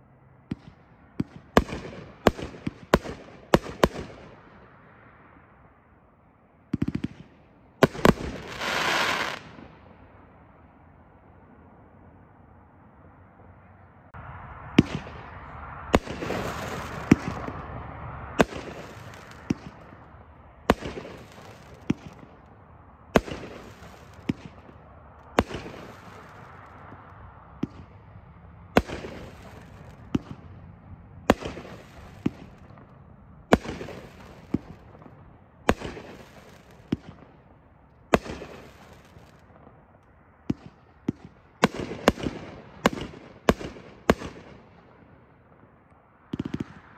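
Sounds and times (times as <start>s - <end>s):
firework bangs: 0.5s - 4.4s, 6.7s - 9.8s, 14.7s - 22.5s, 23.1s - 28.0s, 28.7s - 30.6s, 31.2s - 37.5s, 38.1s - 39.8s, 40.5s - 44.6s.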